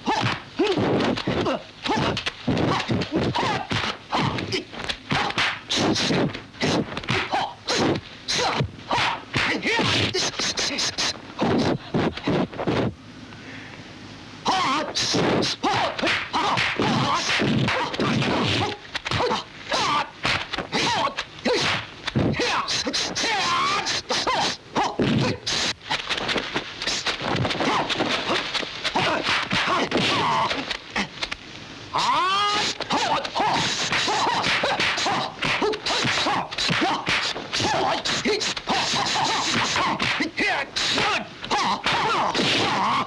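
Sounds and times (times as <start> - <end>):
fighters shouting and yelping: 0.0 - 12.3, 14.4 - 26.0, 26.8 - 31.3, 31.9 - 43.0
punch and kick slaps: 0.1 - 10.4, 15.1 - 22.6, 25.0 - 30.8, 32.6 - 43.0.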